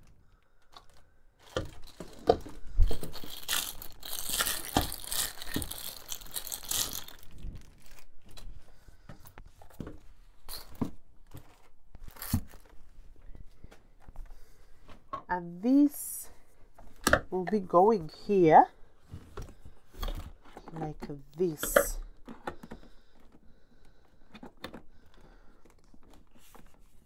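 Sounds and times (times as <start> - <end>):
plastic wrapping crinkling and tearing: 0.6 - 8.7, 10.5 - 13.0.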